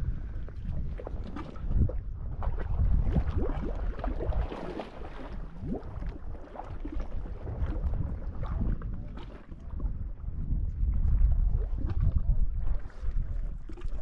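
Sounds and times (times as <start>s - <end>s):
wind rumbling on microphone: 0.0s - 14.0s
small waves lapping against rock: 0.3s - 14.0s.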